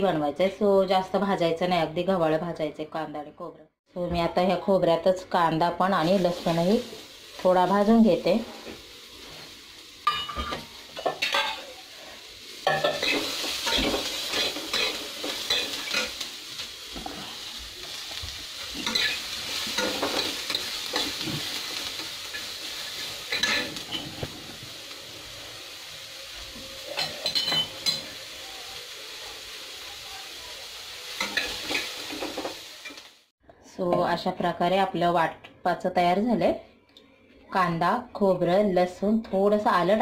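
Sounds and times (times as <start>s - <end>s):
onion and garlic sizzling: 4.4s - 33.3s
steel spatula scraping a pan: 18.6s - 24.3s.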